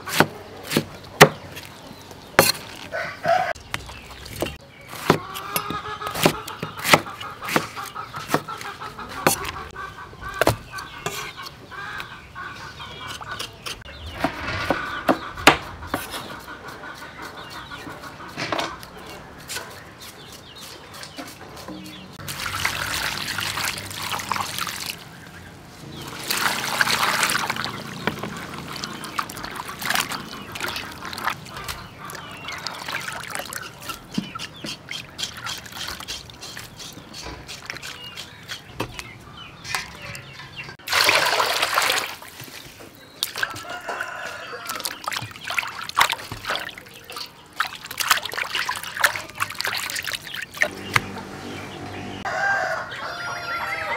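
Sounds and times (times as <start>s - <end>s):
water splashing in a metal bowl: 3.6s - 7.8s, 21.6s - 38.6s, 39.8s - 42.6s, 44.6s - 51.1s.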